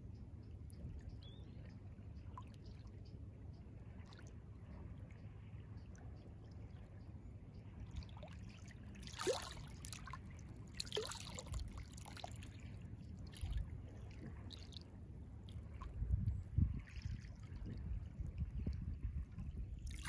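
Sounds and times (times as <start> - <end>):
small water plops: 7.9 - 20.0
sea waves lapping: 8.4 - 12.7
gurgling splashes: 8.9 - 12.7
steady low rumble: 11.4 - 20.0.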